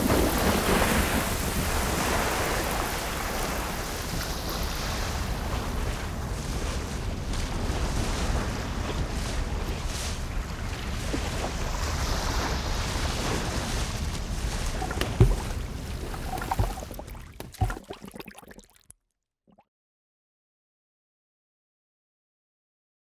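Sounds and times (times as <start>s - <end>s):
wind: 0.0s - 17.9s
sea surf: 0.0s - 18.0s.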